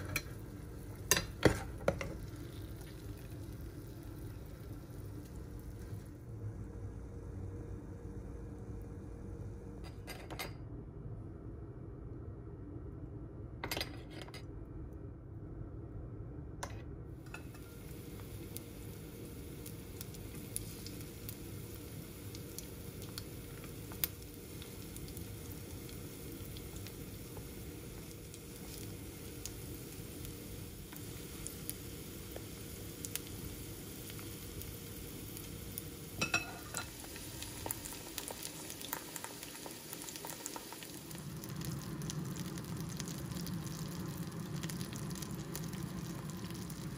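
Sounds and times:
shrimp sizzling in oil: 0.0 - 6.2, 17.3 - 46.9.

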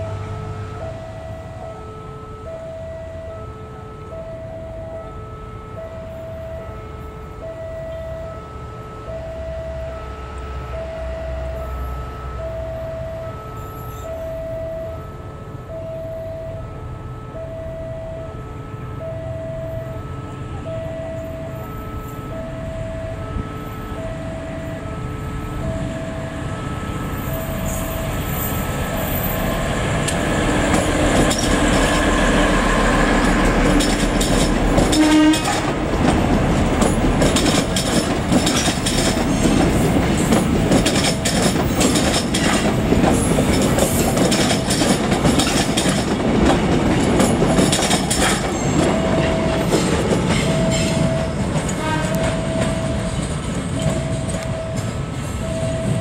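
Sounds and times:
train horn: 0.0 - 15.6, 16.4 - 42.0, 47.2 - 53.2
train passing: 0.0 - 56.0
wheels clattering over rail joints: 29.8 - 32.1, 33.2 - 55.0
repeating beeping tone: 48.5 - 51.6, 52.2 - 56.0.

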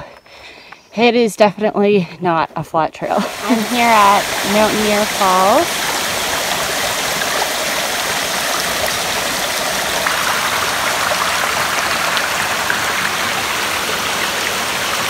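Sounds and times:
waterfall splashing over rocks: 3.1 - 15.0.

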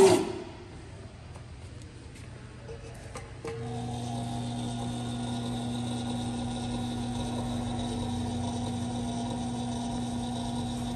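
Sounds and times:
electric motor hum: 3.4 - 10.9
gear whine: 3.5 - 10.9.

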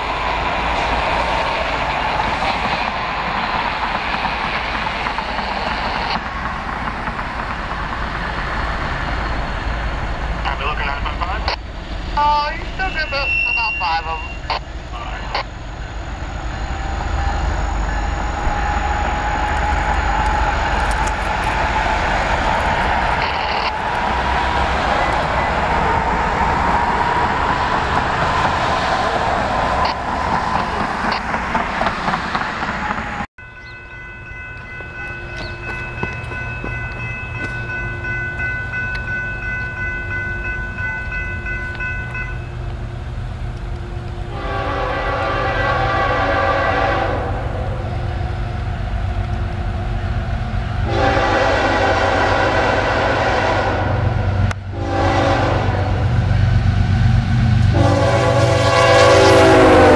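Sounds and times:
locomotive engine rumble and whine: 0.0 - 59.9
train air horn: 44.3 - 47.9, 50.8 - 56.0, 57.7 - 59.9.

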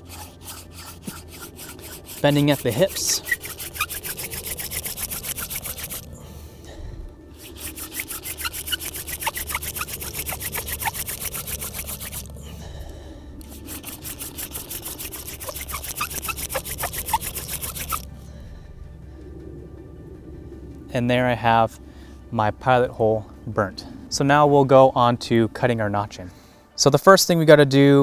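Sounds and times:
wooden spindle rasping on fireboard: 0.0 - 6.2, 7.3 - 12.4, 13.4 - 18.1.

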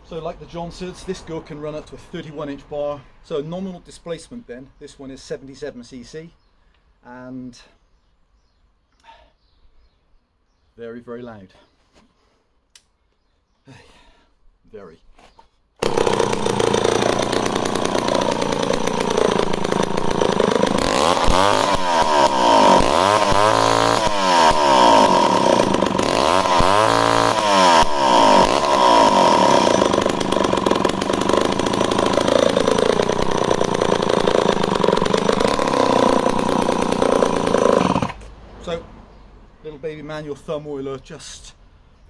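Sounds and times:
chainsaw engine revving: 15.8 - 38.3.

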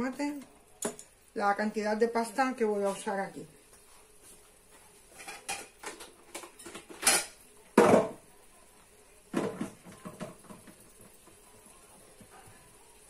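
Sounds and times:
dishes and containers clattering: 5.1 - 8.2, 9.3 - 11.2.

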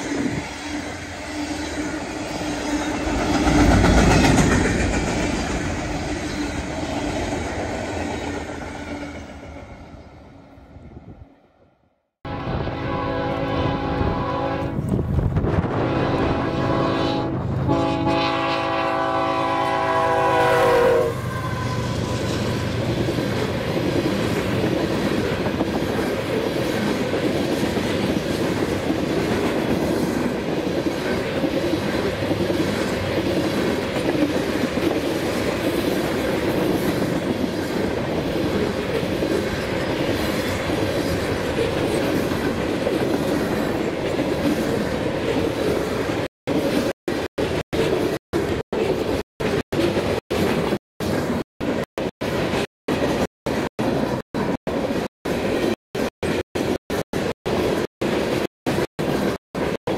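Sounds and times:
train horn blasts: 12.2 - 14.9, 15.7 - 22.6.

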